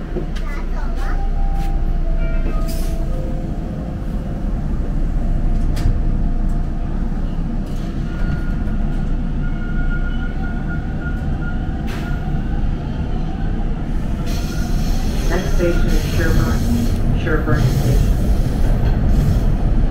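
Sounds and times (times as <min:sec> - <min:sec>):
train wheels and motors rumbling: 0:00.0 - 0:19.9.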